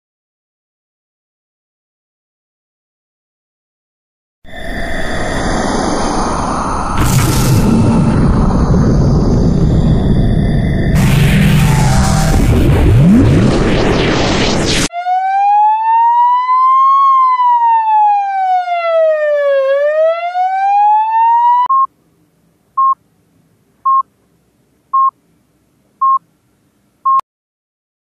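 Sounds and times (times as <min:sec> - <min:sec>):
loud noisy burst: 0:04.5 - 0:14.9.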